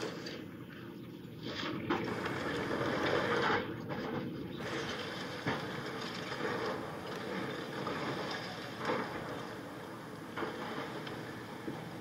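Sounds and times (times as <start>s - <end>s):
excavator engine running: 2.0s - 12.0s.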